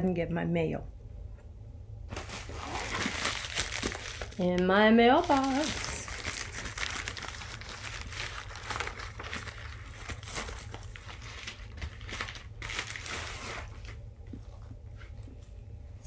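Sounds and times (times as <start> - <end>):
plastic package crinkling: 2.2 - 14.0.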